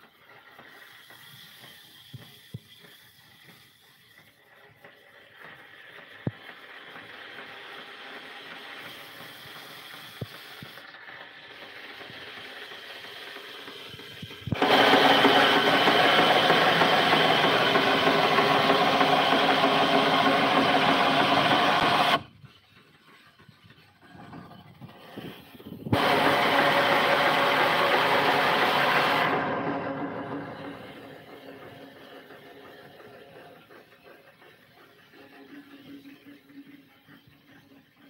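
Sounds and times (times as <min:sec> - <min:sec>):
band sawmill running: 0:00.0 - 0:38.0
band blade cutting log: 0:14.6 - 0:22.2.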